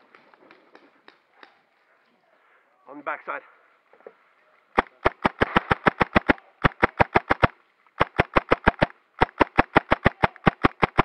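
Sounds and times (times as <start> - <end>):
airsoft pistol firing rapid shots: 4.8 - 11.0.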